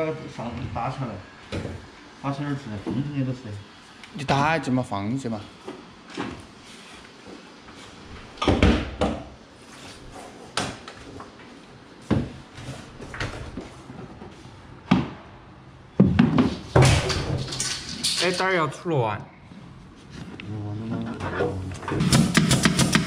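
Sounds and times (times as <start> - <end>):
board banging against wall: 16.0 - 17.6
board knocking and thudding: 16.0 - 17.6.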